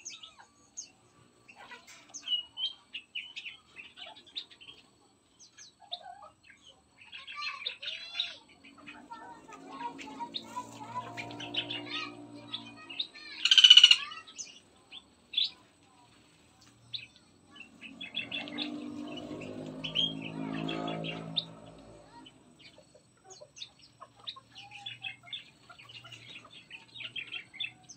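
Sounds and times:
songbirds chirping: 0.0 - 27.9.

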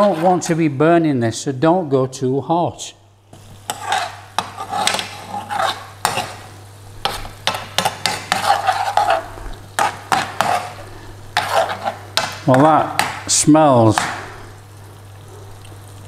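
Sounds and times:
spoon scraping a frying pan: 0.0 - 0.6, 3.4 - 13.2
sauce sizzling: 3.0 - 16.0
spoon knocking against pan: 7.0 - 8.5, 11.4 - 13.3, 13.9 - 14.4.

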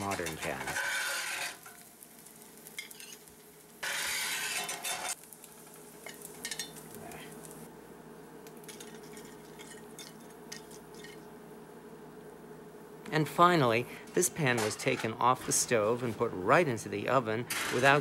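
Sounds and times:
metal spatula scraping cast iron: 0.0 - 1.9, 2.8 - 3.2, 3.8 - 5.2.

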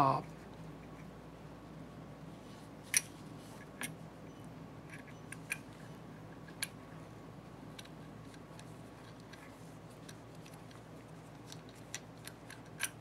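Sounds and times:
faint steady hum: 0.0 - 13.0
sharp clicks of metal parts: 11.4 - 13.0.

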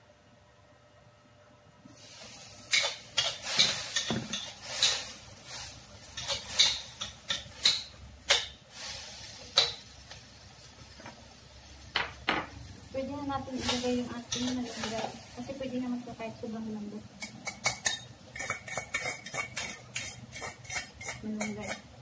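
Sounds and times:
pork sizzling: 1.9 - 22.0
metal spatula scraping wok: 2.3 - 7.9, 17.2 - 21.9.

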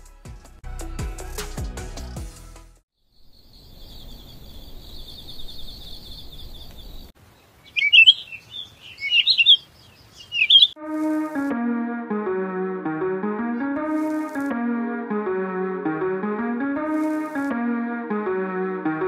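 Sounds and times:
music: 0.0 - 2.8, 10.8 - 19.0
crickets chirping: 3.0 - 10.7
songbirds chirping: 3.0 - 10.8.

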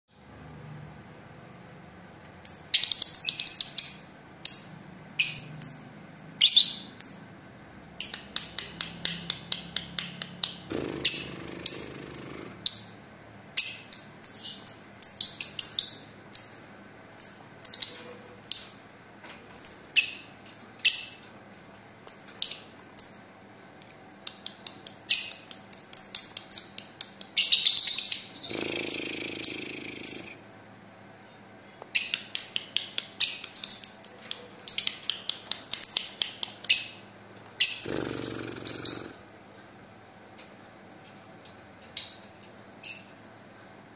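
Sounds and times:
lovebird chirping: 2.4 - 7.4, 8.0 - 18.9, 25.0 - 30.5, 31.9 - 39.3
rough bird calls: 28.3 - 30.4, 37.6 - 39.3.

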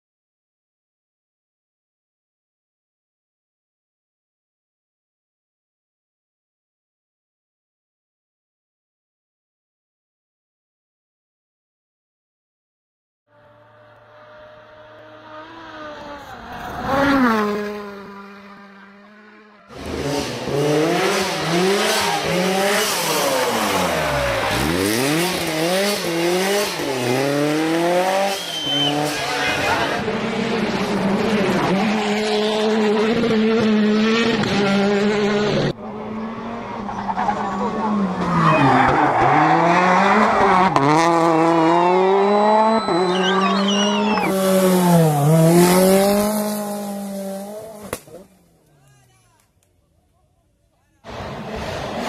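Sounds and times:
rally car engine revving: 13.3 - 48.5, 51.0 - 52.0.

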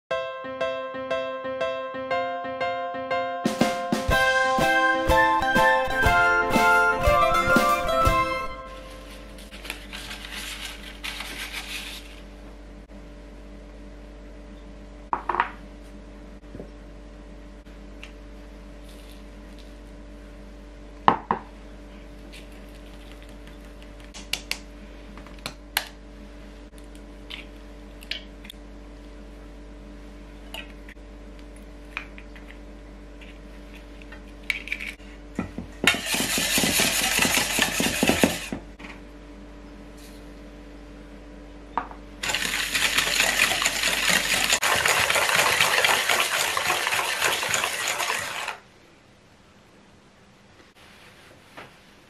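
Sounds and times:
wire whisk beating in metal bowl: 35.9 - 38.6, 42.2 - 48.6.

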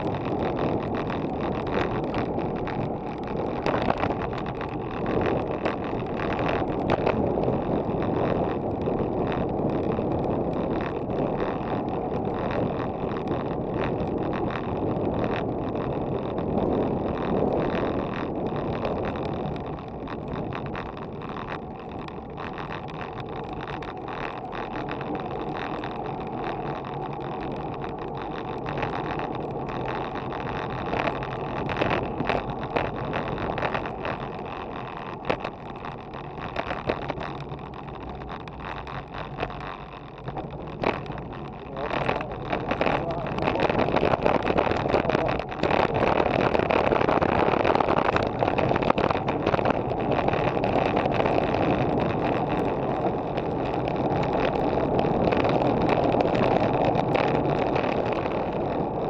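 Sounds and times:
bike tyres rolling on pavement: 0.0 - 59.0
small clicks and rattles: 0.0 - 59.0
wind rushing over microphone: 0.0 - 59.0.

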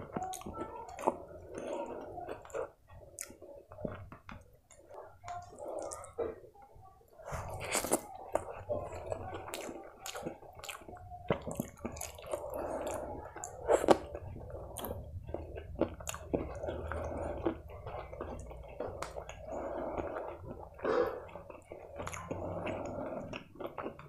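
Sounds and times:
fingers squishing food: 0.0 - 6.2, 7.2 - 24.0
chewing: 0.0 - 24.0.

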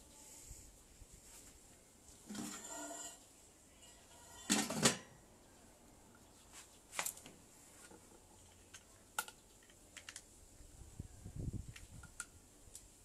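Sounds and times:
metal lid clatter: 2.3 - 3.2, 4.4 - 5.1.

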